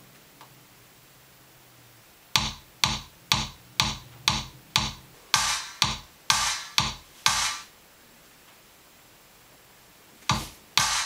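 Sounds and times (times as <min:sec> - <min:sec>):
drum machine beat: 0:02.4 - 0:07.7, 0:10.3 - 0:11.0.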